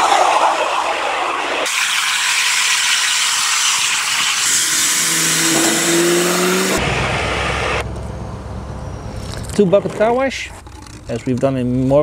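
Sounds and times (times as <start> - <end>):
pressure washer water jet hissing: 1.6 - 7.8.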